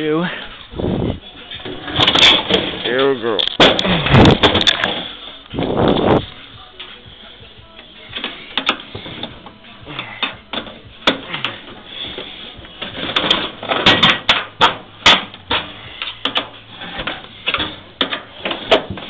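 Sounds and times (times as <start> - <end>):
sheet metal clicks and clatter: 1.9 - 5.0, 12.8 - 19.0.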